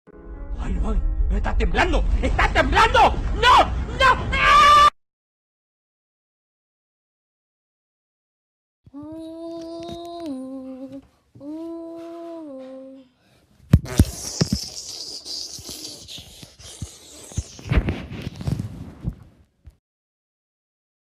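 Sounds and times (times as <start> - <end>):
person humming: 8.9 - 13.2.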